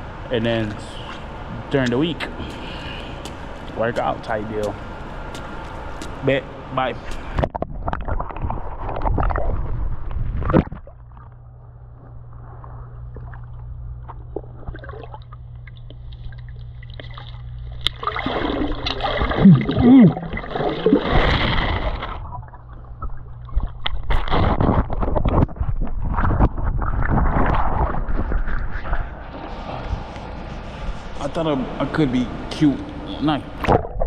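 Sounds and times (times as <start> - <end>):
muffled underwater water noise: 0.0 - 31.8, 32.9 - 34.0
underwater low hum: 0.0 - 34.0
pool water splashing: 14.2 - 24.5.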